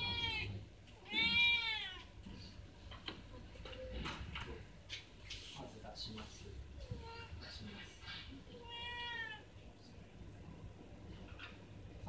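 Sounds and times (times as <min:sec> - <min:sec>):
cat meowing: 0:00.0 - 0:02.1, 0:08.5 - 0:09.5.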